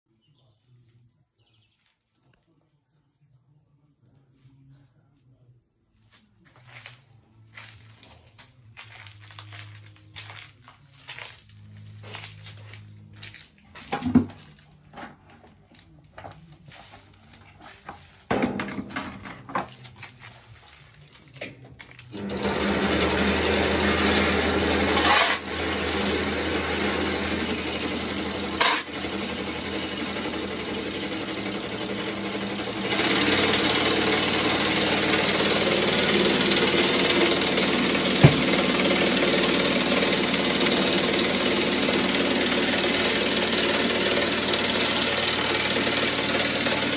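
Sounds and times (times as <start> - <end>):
knocks and clatter: 13.8 - 15.4, 18.2 - 20.0, 37.0 - 39.0.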